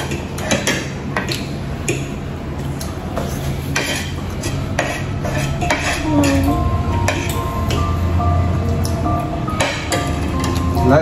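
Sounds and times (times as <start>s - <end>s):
cutlery scraping a ceramic plate: 3.2s - 6.5s.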